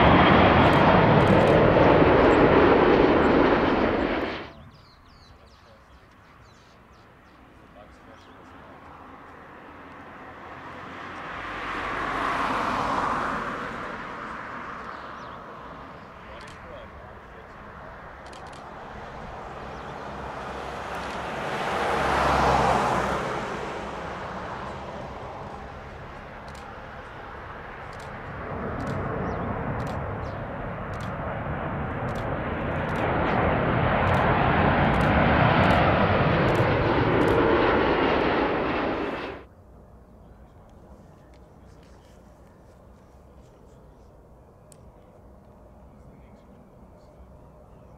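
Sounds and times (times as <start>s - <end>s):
vehicle passing by: 9.6s - 16.0s, 19.5s - 39.5s.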